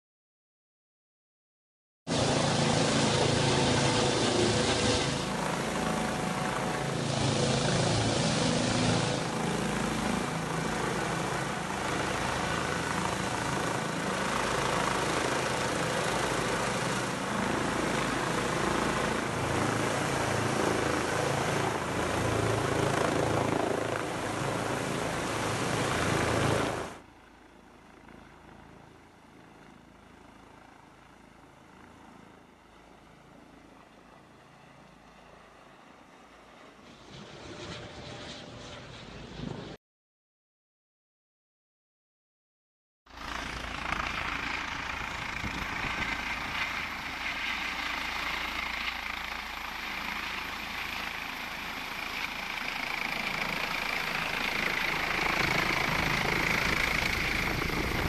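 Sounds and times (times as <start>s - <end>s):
helicopter hovering: 2.1s - 39.8s, 43.1s - 58.0s.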